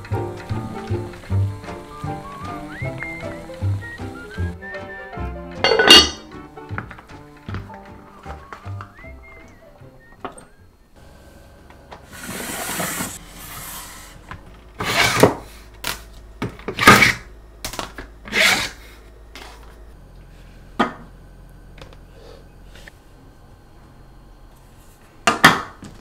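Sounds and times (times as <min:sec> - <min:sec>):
cutting board scraping: 0:12.1 - 0:14.2, 0:14.8 - 0:15.5.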